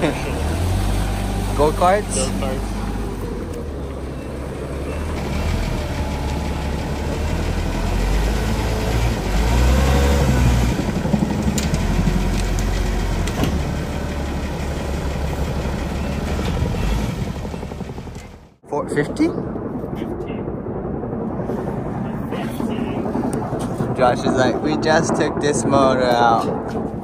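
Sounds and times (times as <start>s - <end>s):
forklift engine idling: 0.0s - 18.6s.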